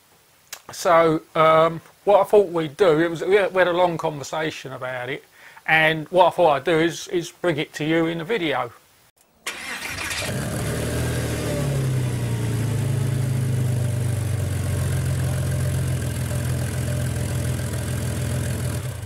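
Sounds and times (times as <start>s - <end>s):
car engine revving: 9.5s - 19.0s.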